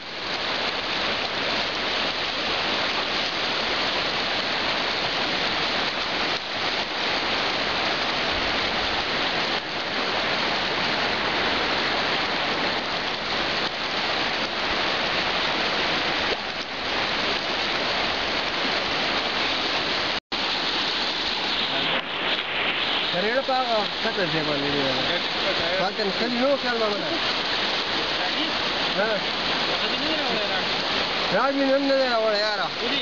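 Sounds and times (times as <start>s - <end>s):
river rushing over stones: 0.0s - 33.0s.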